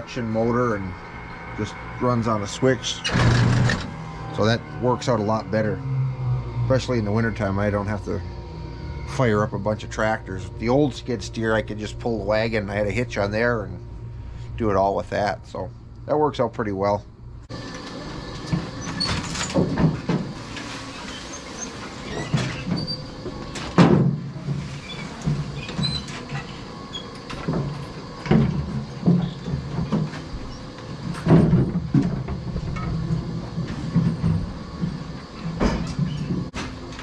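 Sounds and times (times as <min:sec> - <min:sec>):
low mechanical hum: 0:00.0 - 0:37.0.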